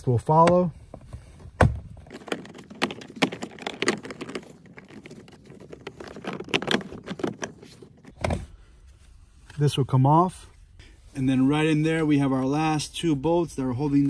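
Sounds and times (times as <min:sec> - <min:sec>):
plastic panel tapping and scraping: 0:01.6 - 0:08.4.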